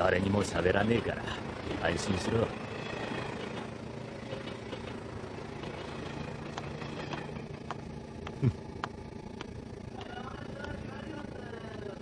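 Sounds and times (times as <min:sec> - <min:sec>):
train car rumble: 0:00.0 - 0:12.0.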